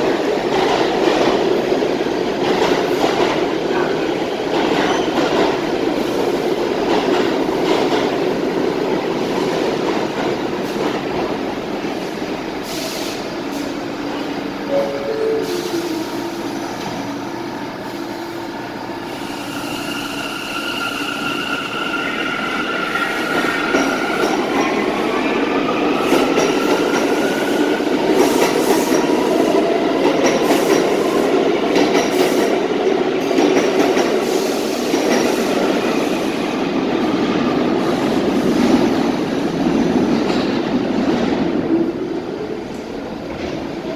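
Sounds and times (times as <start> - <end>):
train wheel and rail noise: 0.0 - 43.9
subway traction motor whine: 11.3 - 30.1.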